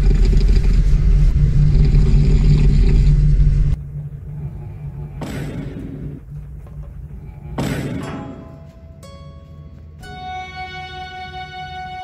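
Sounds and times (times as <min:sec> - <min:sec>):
train rumbling: 0:00.0 - 0:07.6.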